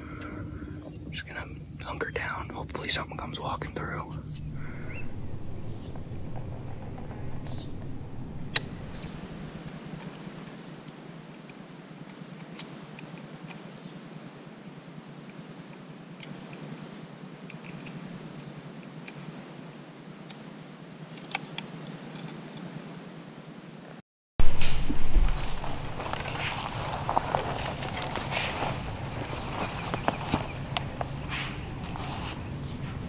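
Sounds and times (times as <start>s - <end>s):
insects chirring: 0.0s - 23.8s, 24.4s - 33.0s
low rumble: 4.2s - 10.0s, 24.4s - 33.0s
faint ticks: 25.6s - 32.8s.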